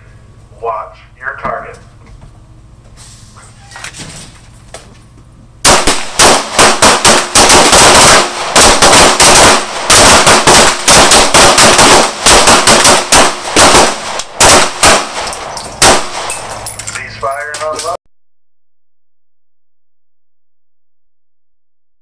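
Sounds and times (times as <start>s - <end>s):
rapid overlapping pistol gunshots: 5.6s - 16.6s.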